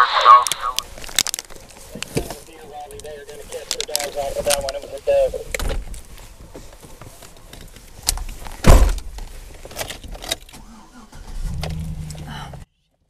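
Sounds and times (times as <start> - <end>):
truck door shutting: 8.6 - 9.3, 10.0 - 12.3.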